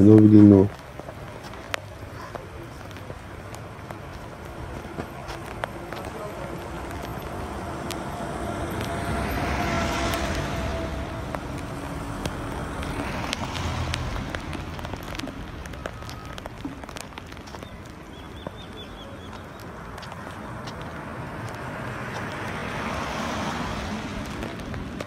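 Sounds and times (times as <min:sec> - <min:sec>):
car passing on wet road: 0:00.0 - 0:25.0
light rain with small ticks: 0:00.0 - 0:25.0
minibus passing on wet road: 0:00.0 - 0:25.0.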